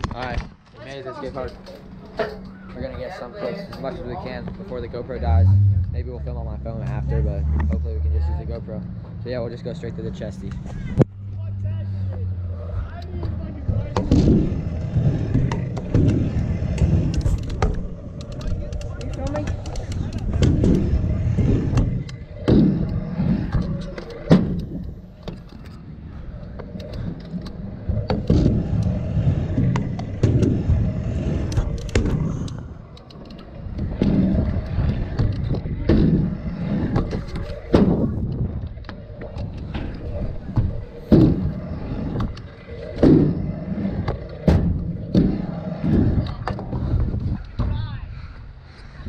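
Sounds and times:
scooter wheels rumbling on concrete: 0.0 - 49.0
scooter deck thudding on ramp: 33.8 - 38.6, 39.2 - 47.8.

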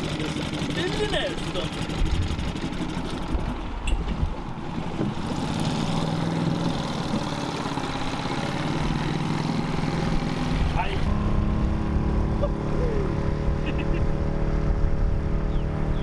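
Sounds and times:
outboard motor idling: 0.0 - 11.0.

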